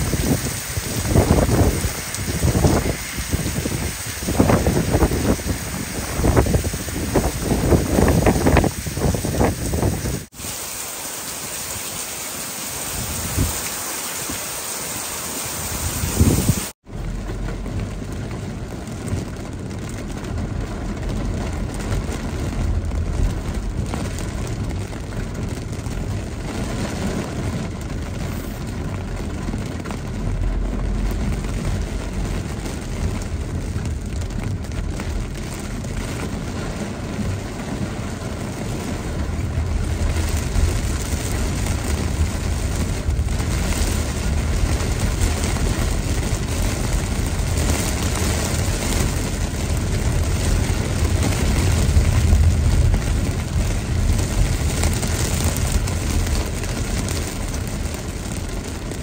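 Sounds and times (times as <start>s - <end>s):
wind gusting on microphone: 0.0s - 10.3s, 12.8s - 14.5s, 15.4s - 16.8s, 30.0s - 59.0s
heavy rain pouring: 0.0s - 59.0s
rain hitting a car: 0.0s - 59.0s
tyres on wet road: 0.0s - 59.0s.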